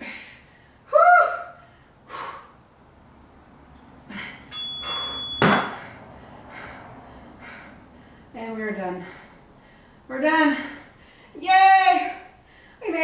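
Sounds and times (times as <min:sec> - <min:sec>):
hard rhythmic exhales: 0:01.6 - 0:02.8, 0:05.7 - 0:11.4
interval timer chime: 0:04.5 - 0:05.8.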